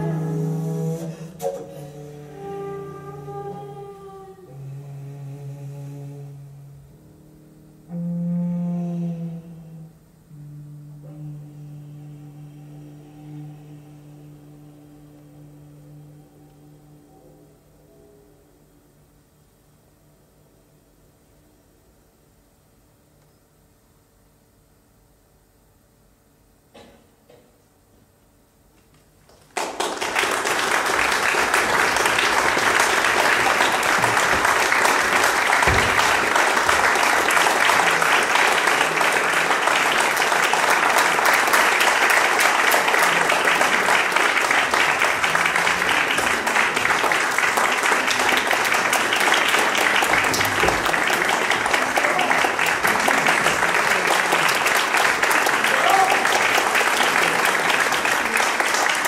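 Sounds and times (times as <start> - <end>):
audience applause: 29.3 - 59.0.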